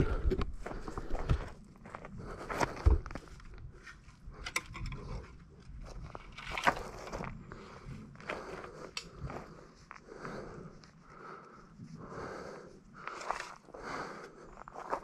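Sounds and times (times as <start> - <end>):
footsteps on gravel: 13.0 - 15.0.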